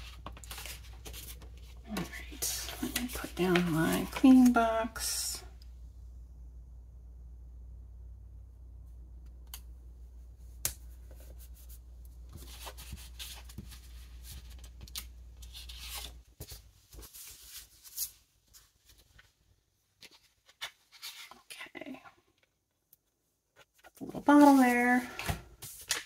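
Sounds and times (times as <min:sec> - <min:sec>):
paper rustling: 0:00.0 - 0:04.6, 0:11.0 - 0:19.4, 0:23.6 - 0:26.0
low steady hum: 0:00.0 - 0:19.3.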